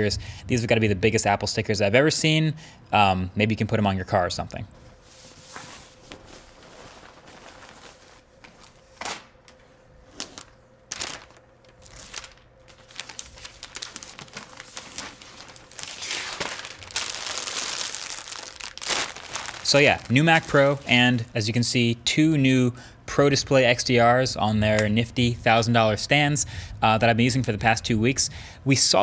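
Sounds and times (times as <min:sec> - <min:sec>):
packaging wrap rustling and crinkling: 0:05.2 - 0:21.3.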